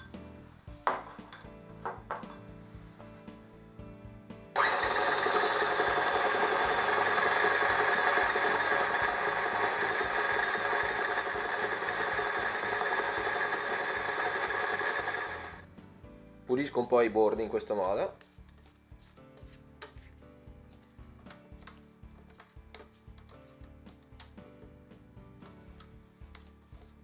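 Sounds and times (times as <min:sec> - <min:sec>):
stand mixer motor whining: 0:04.6 - 0:15.7.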